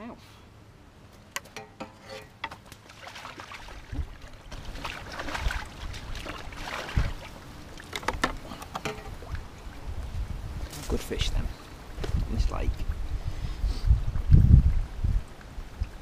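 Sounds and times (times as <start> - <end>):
wind gusting on microphone: 3.8 - 7.6, 9.1 - 16.0
fishing pole and tackle rattling: 7.8 - 9.2.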